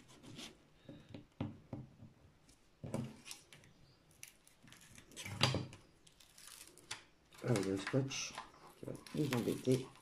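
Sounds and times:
plastic film handling noises: 3.0 - 10.0.

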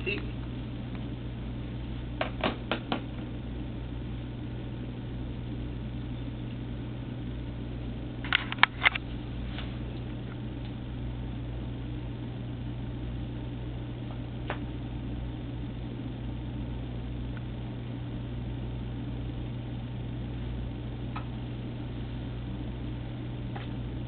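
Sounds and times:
low electrical hum: 0.0 - 24.0.

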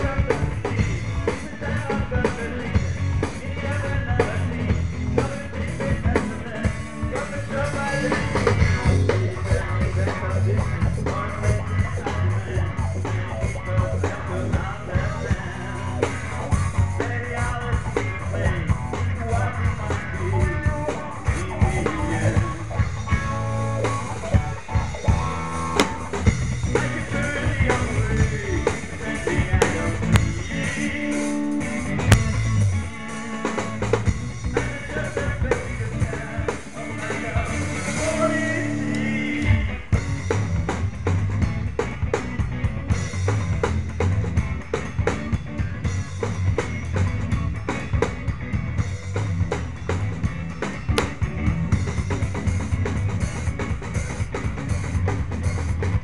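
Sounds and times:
man singing into microphone: 0.0 - 16.2, 16.9 - 22.8, 26.7 - 32.4, 34.5 - 39.9
bass guitar: 0.0 - 56.0
drum kit beat: 0.0 - 56.0
electric guitar: 0.0 - 56.0.

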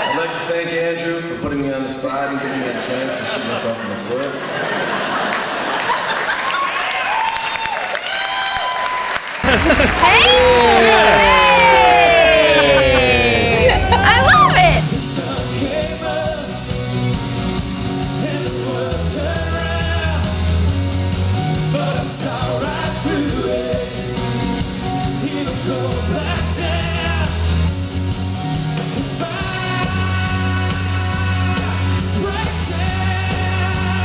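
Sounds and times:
bass guitar: 9.4 - 34.0
electric guitars: 9.4 - 34.0
man singing: 14.0 - 16.8, 18.0 - 20.7, 21.5 - 24.2, 25.0 - 27.7, 28.8 - 34.0.

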